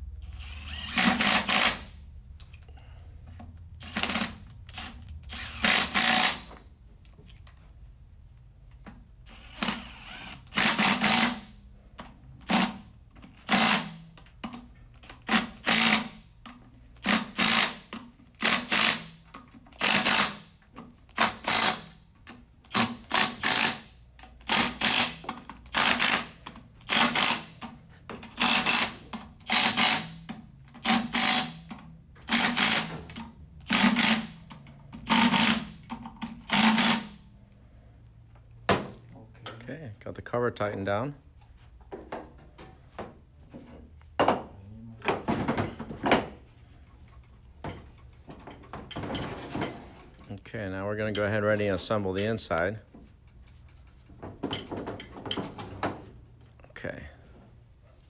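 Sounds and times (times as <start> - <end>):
cordless power tool bursts: 0.2 - 1.9, 3.8 - 6.5, 13.4 - 14.0, 15.3 - 16.2, 17.0 - 19.2, 19.8 - 20.5, 21.1 - 21.9, 22.7 - 27.6, 35.0 - 35.8, 36.4 - 37.2.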